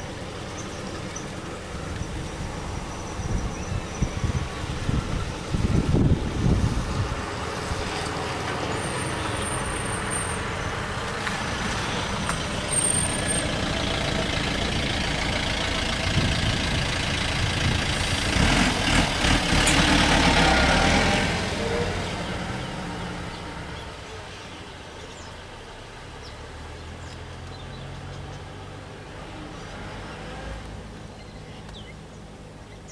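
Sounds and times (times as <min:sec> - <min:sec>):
vehicle engine running: 0:00.0 - 0:20.5.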